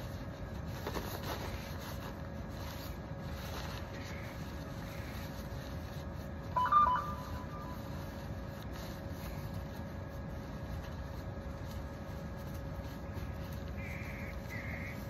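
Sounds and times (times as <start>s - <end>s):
faint constant hum: 0.0s - 15.0s
electronic beep: 6.6s - 7.8s.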